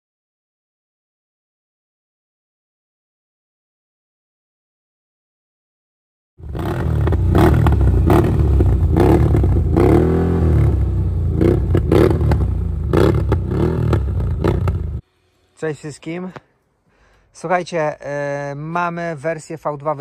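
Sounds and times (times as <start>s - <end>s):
atv engine revving: 6.4s - 15.0s.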